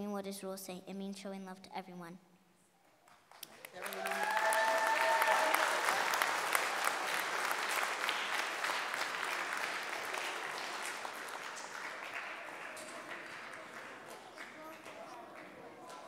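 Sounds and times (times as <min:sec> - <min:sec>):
audience applauding: 0:03.1 - 0:16.0.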